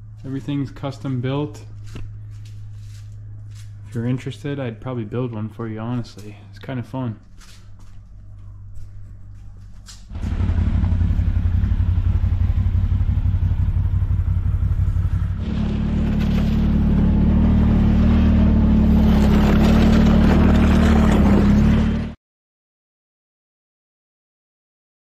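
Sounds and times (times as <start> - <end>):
atv engine running: 8.4 - 22.1.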